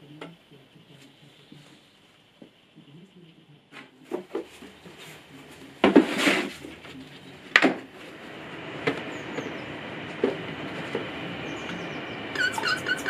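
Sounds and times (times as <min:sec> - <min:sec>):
steady background hum: 0:00.0 - 0:13.0
rustling clatter: 0:04.2 - 0:08.2.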